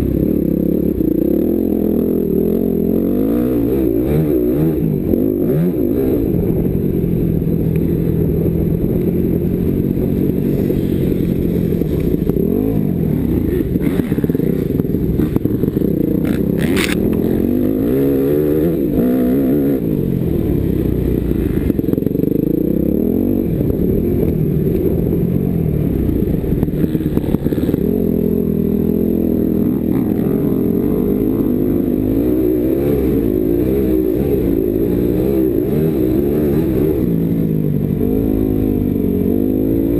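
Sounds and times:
motocross engine revving: 9.5s - 39.9s.

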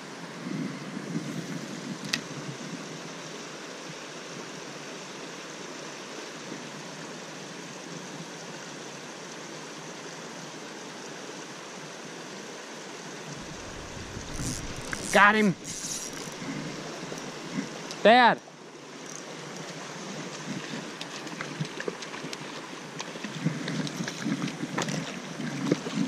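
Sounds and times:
stream rushing over rocks: 8.4s - 26.0s.

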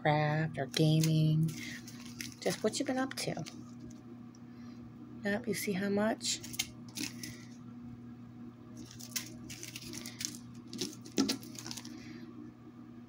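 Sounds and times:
steady low hum: 0.0s - 13.0s
plastic bags crinkling: 0.7s - 4.0s, 6.4s - 7.5s, 8.8s - 12.0s.

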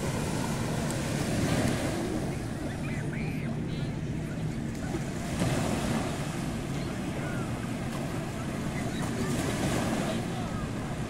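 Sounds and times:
sea waves breaking on sand: 0.0s - 11.0s.

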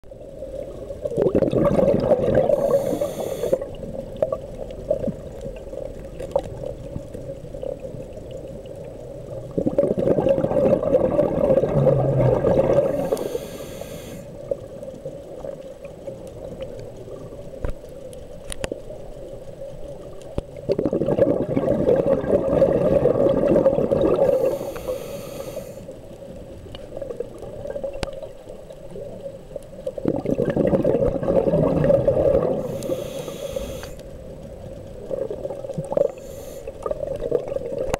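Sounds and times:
bubbling regulator exhalations: 1.0s - 4.4s, 9.4s - 14.2s, 20.6s - 25.8s, 30.0s - 34.0s
regulator hiss on inhale: 2.4s - 3.8s, 12.7s - 14.4s, 24.2s - 26.0s, 32.6s - 34.3s, 35.8s - 37.1s.

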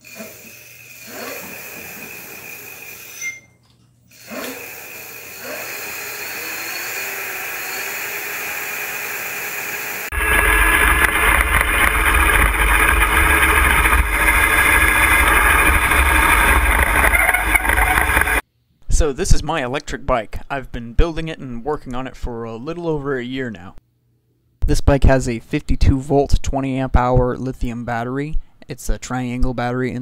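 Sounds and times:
electric motor whine: 0.0s - 3.3s, 4.1s - 18.4s
road noise: 10.1s - 18.4s.

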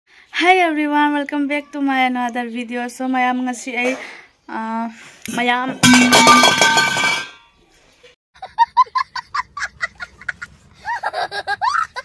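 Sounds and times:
young boy laughing hysterically: 8.4s - 12.0s.

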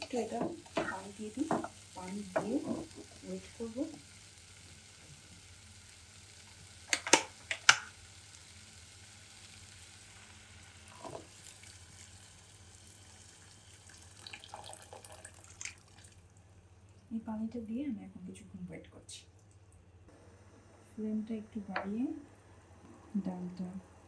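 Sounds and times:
water pouring into pot: 10.9s - 16.3s.

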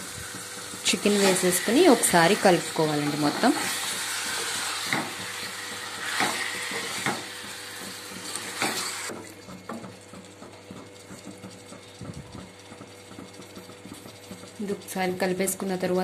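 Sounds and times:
chicken sizzling in oil: 0.0s - 9.1s
wooden spatula scraping pan: 0.0s - 9.1s.

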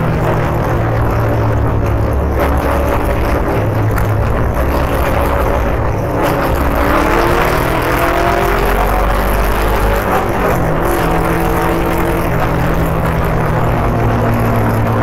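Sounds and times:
motorcycle engine revving: 0.0s - 15.0s
wind rushing over microphone: 0.0s - 15.0s.

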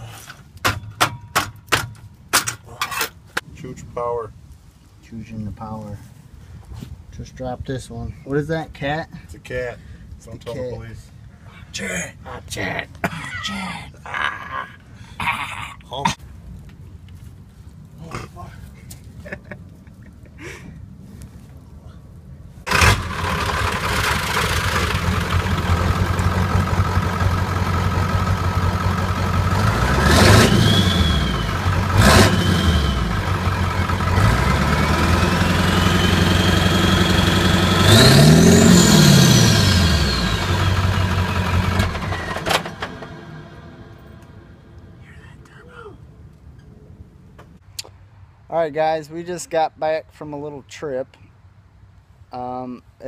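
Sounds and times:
diesel engine idling and revving: 22.7s - 44.9s.

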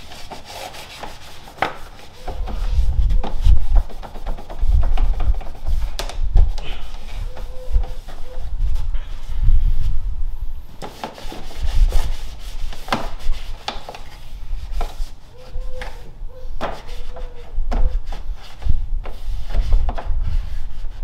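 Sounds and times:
cloth rag rubbing metal: 0.0s - 6.0s, 10.9s - 15.8s.

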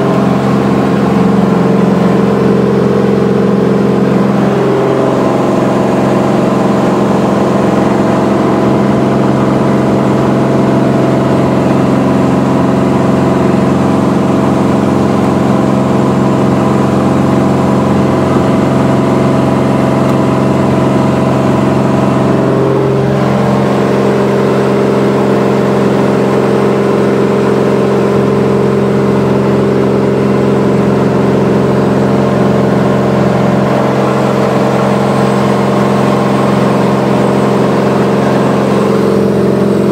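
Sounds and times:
aircraft engine and propeller droning: 0.0s - 39.9s.

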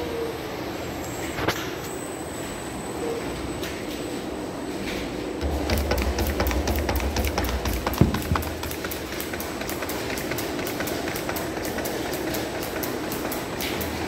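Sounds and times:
sharp knock: 5.4s - 8.8s
even mechanical ticking: 5.4s - 14.0s
pumps and drives running: 5.4s - 14.0s.

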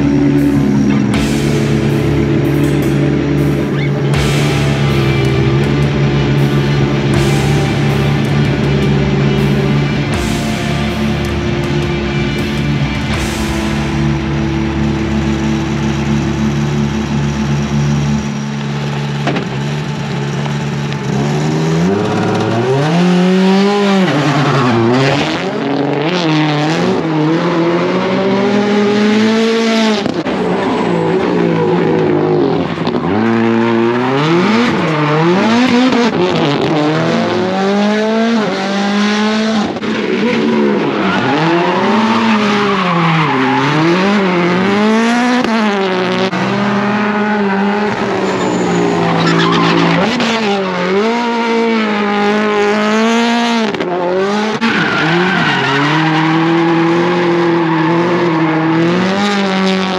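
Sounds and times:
car engine revving: 0.0s - 59.9s
tyre squeal and wheelspin: 40.0s - 44.7s, 47.2s - 50.6s, 54.5s - 58.9s.

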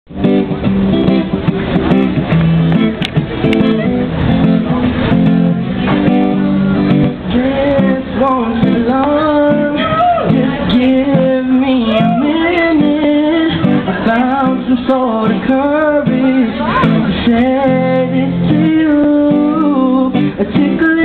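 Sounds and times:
guitar strummed and picked: 0.1s - 21.0s
man singing: 6.4s - 21.0s.

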